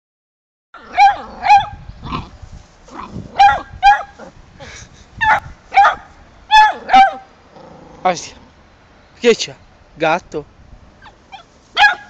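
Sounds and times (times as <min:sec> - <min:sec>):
dog barking in high yelps: 0:00.8 - 0:02.2, 0:03.3 - 0:04.3, 0:05.2 - 0:07.3, 0:11.0 - 0:12.0.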